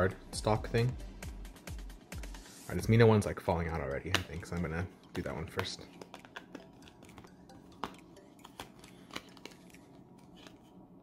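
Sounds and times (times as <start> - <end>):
cardstock clicks and crinkles: 5.6 - 10.7.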